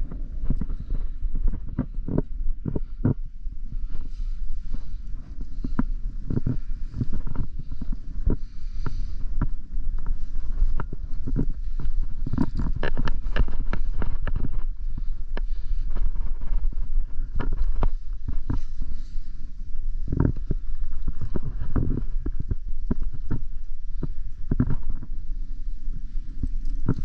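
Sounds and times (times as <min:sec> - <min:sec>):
wind buffeting microphone: 0:00.0 - 0:27.0
climbing gear knocking on rock: 0:05.5 - 0:18.8.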